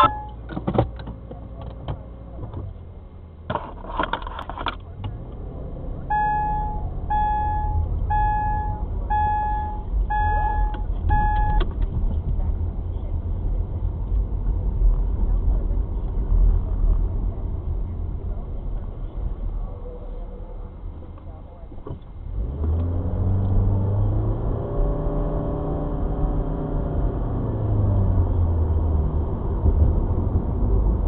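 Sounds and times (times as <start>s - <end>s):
electronic beeps: 0.0s - 0.4s, 6.1s - 11.6s
car engine and road rumble: 0.0s - 31.0s
clicks and rattles: 3.5s - 4.9s.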